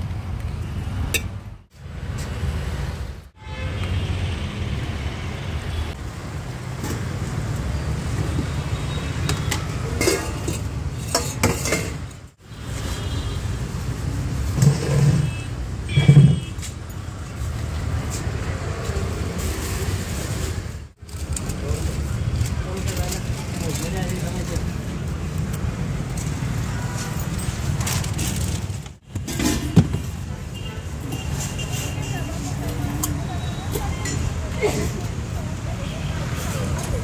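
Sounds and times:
street traffic rumble: 0.0s - 37.0s
steel utensils clinking: 9.4s - 12.1s, 32.9s - 34.8s.

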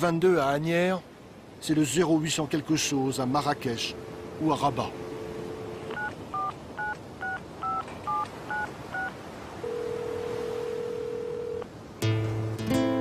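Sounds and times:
telephone ringing tone: 3.4s - 11.7s
telephone dial tone: 5.4s - 11.7s
touch-tone keypad beeps: 5.5s - 11.6s.

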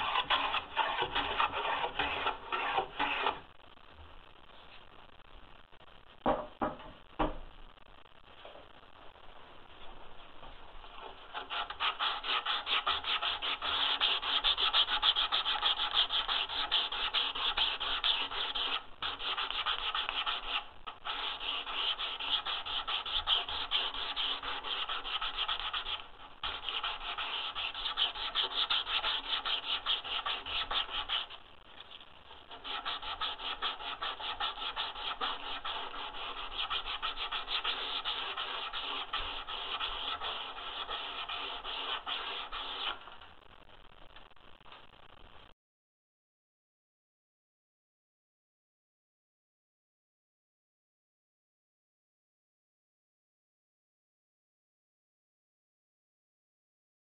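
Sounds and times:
hand sanding wood: 0.0s - 3.4s, 11.3s - 31.4s, 32.5s - 43.0s.

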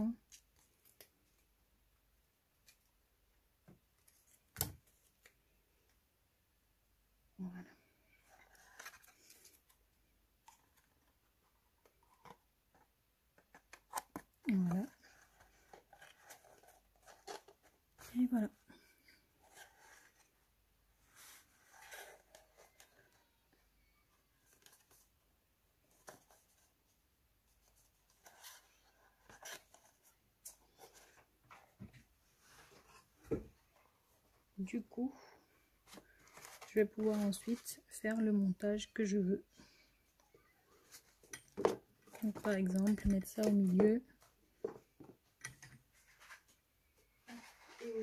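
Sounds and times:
cardstock rustling: 35.8s - 38.0s
cardstock rustling and tapping: 41.2s - 46.3s.

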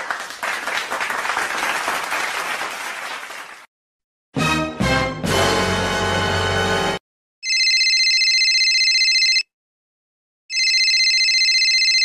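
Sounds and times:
telephone ringing: 7.4s - 9.5s, 10.5s - 12.0s.

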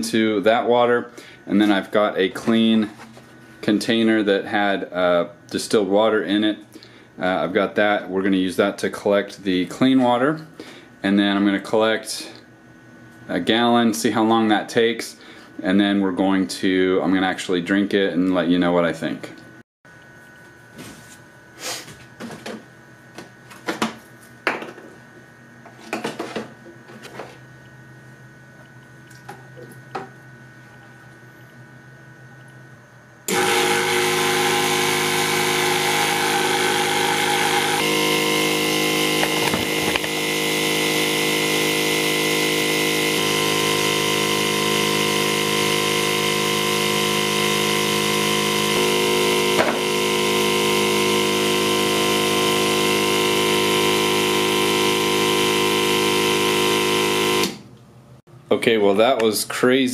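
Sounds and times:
water pump humming: 0.0s - 10.8s, 33.2s - 57.6s.

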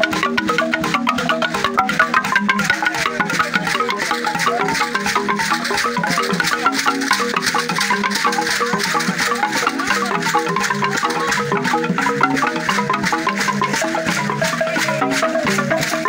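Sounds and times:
shaken rattles: 0.0s - 16.0s
xylophone playing quick pattern: 0.0s - 16.0s.

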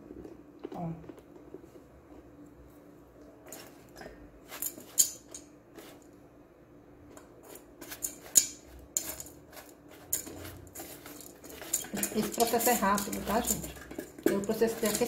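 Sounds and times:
plastic spatula scraping pot: 9.0s - 15.0s.

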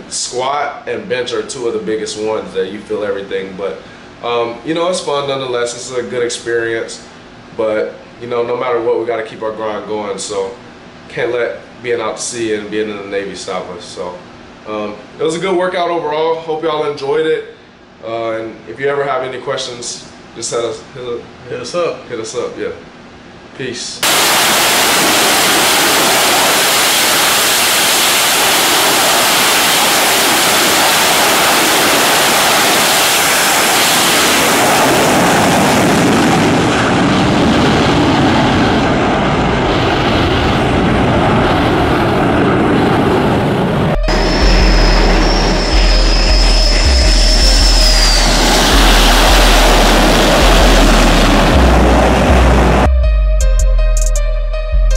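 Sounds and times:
jet engines at full power: 24.0s - 52.9s
music with heavy bass beat: 44.0s - 54.9s.

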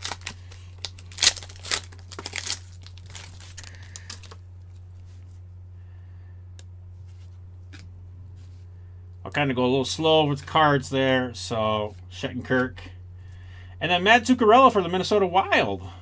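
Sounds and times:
plastic wrapper tearing and crinkling: 0.0s - 4.4s
steady low hum: 0.0s - 16.0s.

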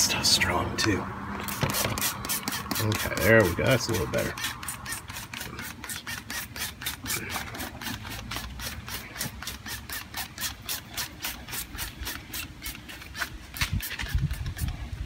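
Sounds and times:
spray bottle hissing spurts: 4.4s - 14.8s.

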